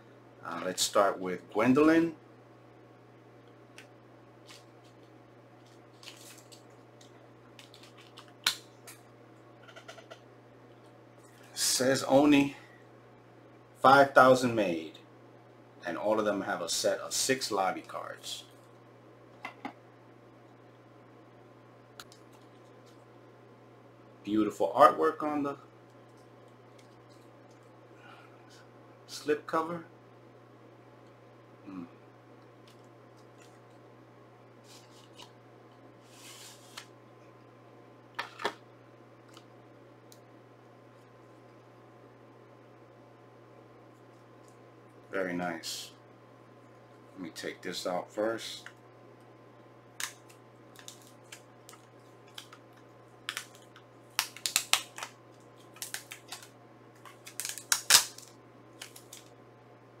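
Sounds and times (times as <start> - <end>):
low steady hum: 0.0 - 60.0
cardboard sleeve scraping rustle: 36.0 - 36.9.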